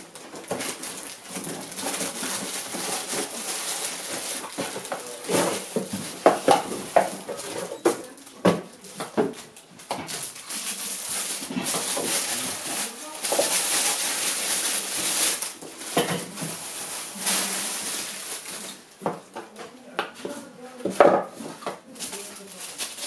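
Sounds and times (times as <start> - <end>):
plastic bag crinkling: 0.0 - 19.1, 21.9 - 23.0.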